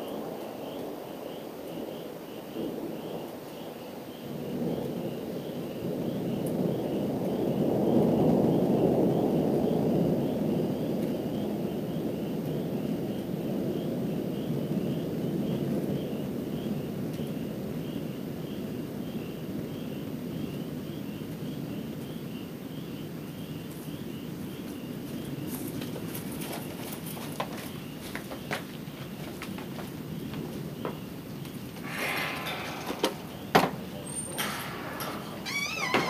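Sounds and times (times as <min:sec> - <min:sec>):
distant thunder rolling: 0:00.0 - 0:36.0
faint high chirping: 0:31.8 - 0:36.0.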